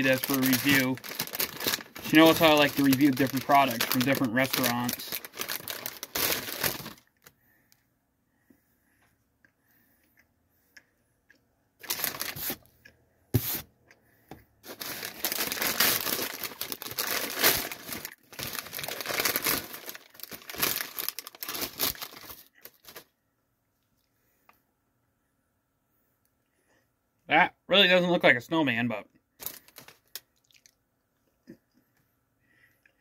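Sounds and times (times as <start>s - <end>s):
packaging crinkling and tearing: 0.0s - 7.3s, 11.8s - 12.7s, 14.6s - 23.1s, 29.4s - 30.7s.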